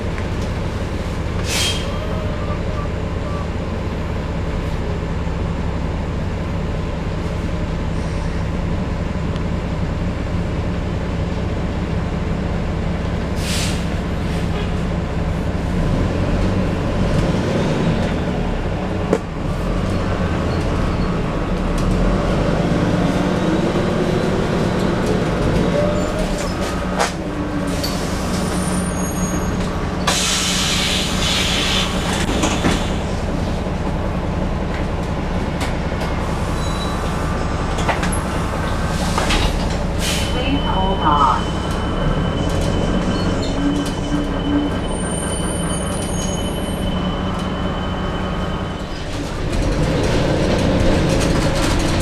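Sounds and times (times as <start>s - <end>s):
bus diesel engine drone: 0.0s - 52.0s
brief air hiss: 1.4s - 2.0s, 13.4s - 13.9s, 30.1s - 32.0s.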